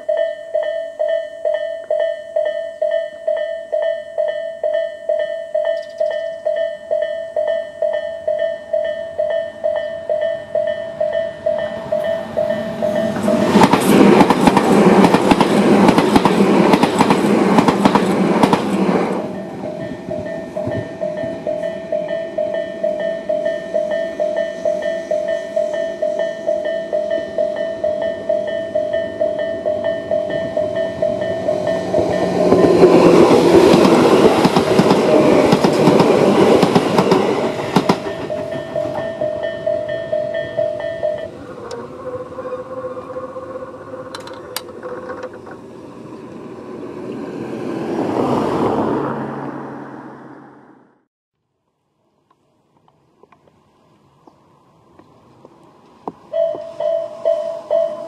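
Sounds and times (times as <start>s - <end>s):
level crossing bell dinging: 0.0s - 13.5s, 19.3s - 33.0s, 37.8s - 41.4s, 56.3s - 58.0s
trains rattling over crossing: 0.0s - 50.0s, 55.0s - 58.0s.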